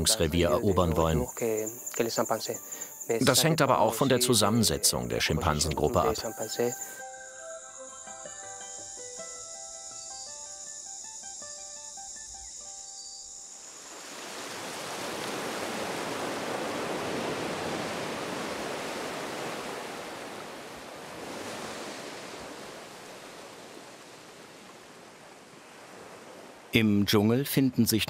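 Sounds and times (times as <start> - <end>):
ocean surf washing in: 13.6 - 26.8.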